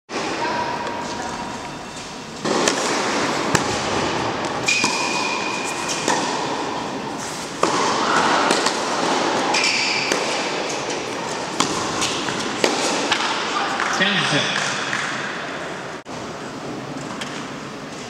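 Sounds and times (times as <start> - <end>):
steady hall background: 0.1 - 18.0
tennis ball bouncing on court: 2.4 - 6.7, 7.6 - 15.2
tennis ball hit by racket: 2.4 - 6.7, 7.5 - 13.5.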